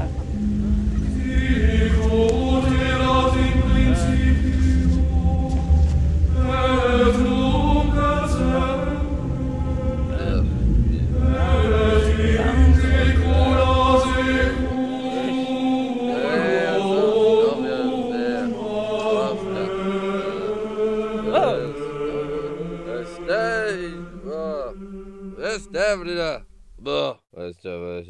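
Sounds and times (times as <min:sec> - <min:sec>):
deep bass: 0:00.0 - 0:14.8
chant-like voices over held tones: 0:00.0 - 0:27.5.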